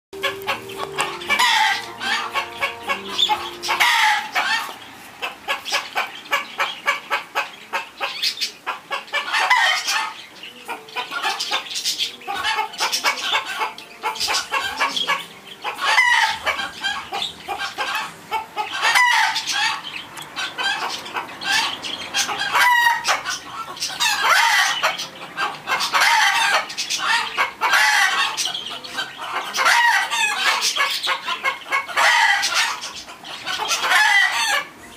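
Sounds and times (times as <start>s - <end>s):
chickens clucking: 0.2s - 34.9s.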